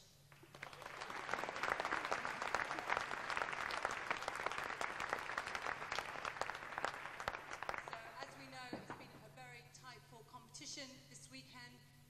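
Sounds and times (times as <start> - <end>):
audience applauding: 0.3 - 9.1.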